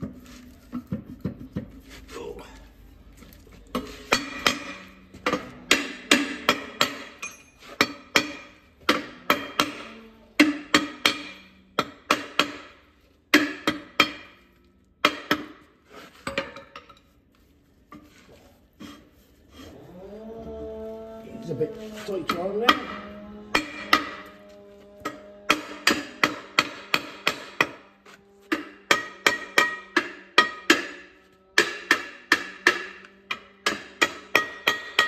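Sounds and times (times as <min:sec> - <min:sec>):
hammer striking metal drum: 0:04.1 - 0:14.4, 0:22.1 - 0:35.0.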